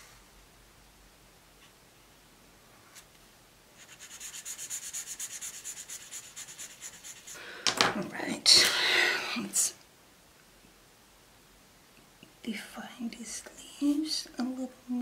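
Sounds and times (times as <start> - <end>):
marker scratching on paper: 3.8 - 7.4.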